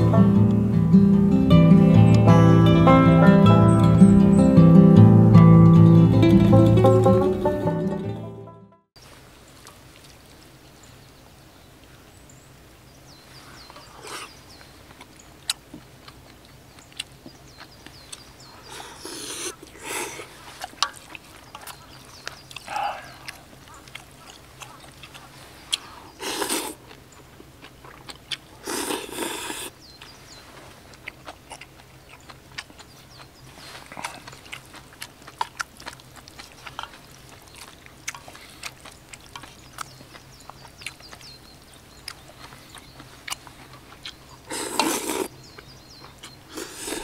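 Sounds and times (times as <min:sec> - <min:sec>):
chewing: 0:13.3 - 0:47.0
small mouth clicks: 0:13.7 - 0:30.1, 0:31.0 - 0:47.0
noodle soup slurping: 0:18.6 - 0:22.0, 0:22.6 - 0:27.0, 0:28.0 - 0:29.8, 0:43.4 - 0:45.3, 0:46.3 - 0:47.0.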